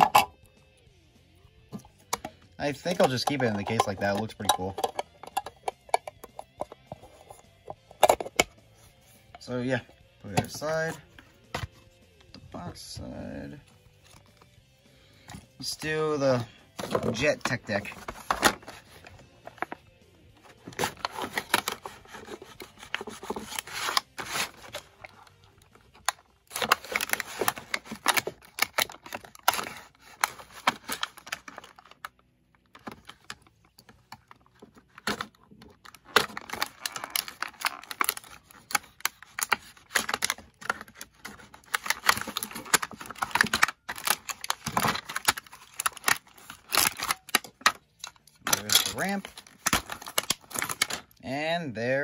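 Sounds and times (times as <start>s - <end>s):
plastic packaging clicking and rustling: 1.7s - 8.6s, 15.2s - 19.8s, 20.4s - 51.2s.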